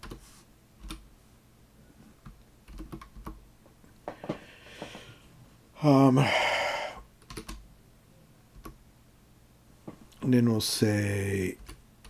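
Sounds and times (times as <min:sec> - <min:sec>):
keyboard typing: 0:00.0 - 0:00.2, 0:00.8 - 0:01.0, 0:02.2 - 0:03.4, 0:07.2 - 0:07.6, 0:11.6 - 0:11.8.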